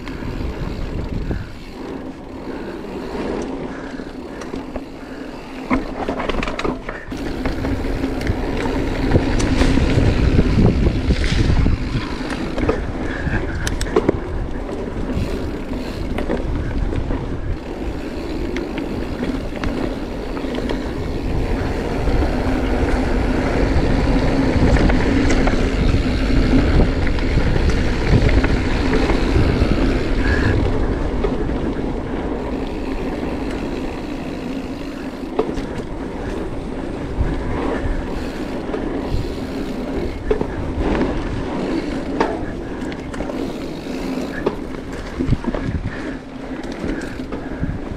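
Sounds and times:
wind on microphone: 0.0 - 3.4, 6.8 - 47.9
bike rattling: 0.0 - 47.9
bike tyres rumbling on dirt: 0.0 - 47.9.

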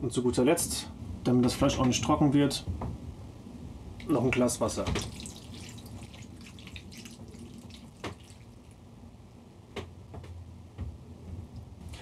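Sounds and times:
water pouring and splashing onto food: 4.8 - 8.8.

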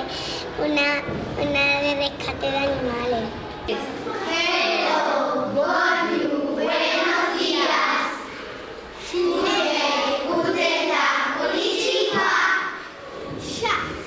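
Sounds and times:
young children singing in unison: 4.0 - 13.5.

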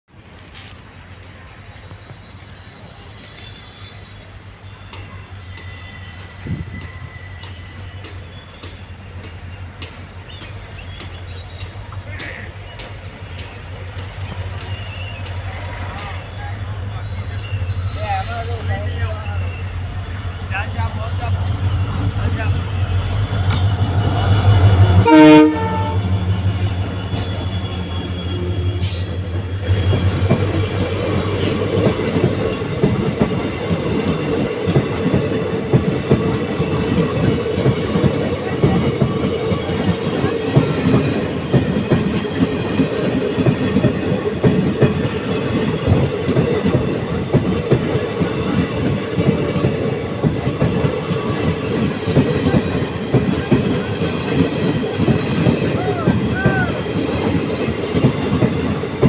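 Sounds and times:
diesel locomotive engine: 0.1 - 59.0
locomotive horn blast: 24.7 - 26.3.

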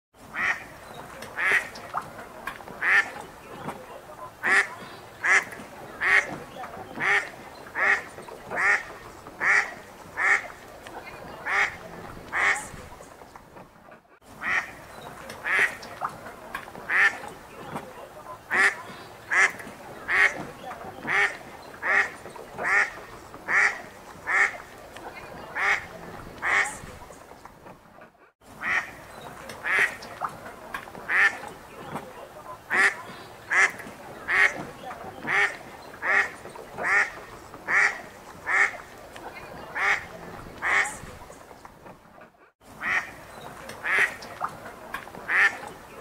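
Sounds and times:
ducks quacking: 0.2 - 13.3, 13.9 - 27.4, 28.1 - 41.6, 42.7 - 46.0
soft water-like background: 0.2 - 46.0.

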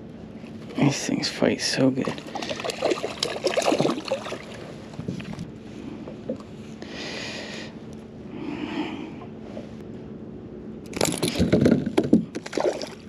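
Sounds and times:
fish splashing in water: 2.0 - 5.4, 12.4 - 13.0.

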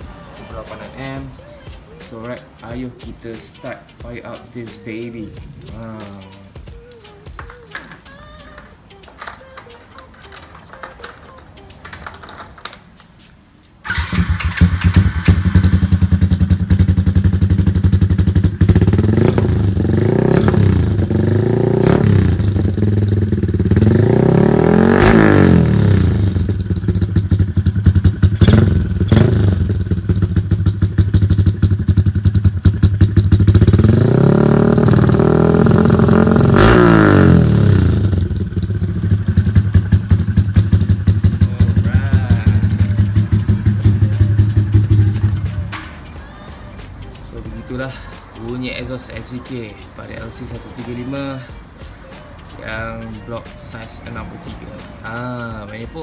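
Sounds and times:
motorcycle engine idling and revving: 13.8 - 46.2, 52.6 - 56.0.

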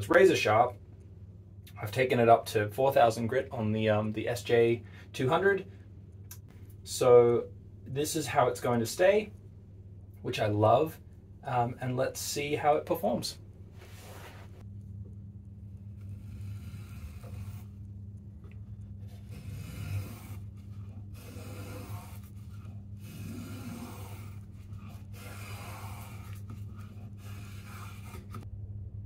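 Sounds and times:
steady low hum: 0.0 - 29.0
spokeshave shaving wood: 15.6 - 28.4.

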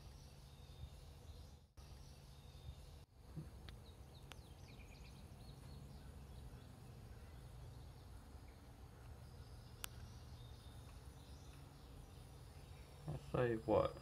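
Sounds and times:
faint bird chirps: 0.0 - 14.0.

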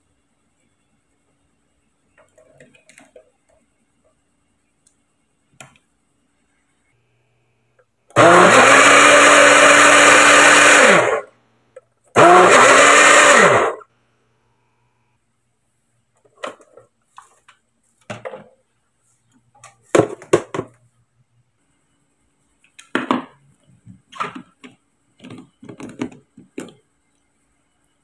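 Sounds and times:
blender motor whirring: 8.1 - 11.3, 12.2 - 13.8.

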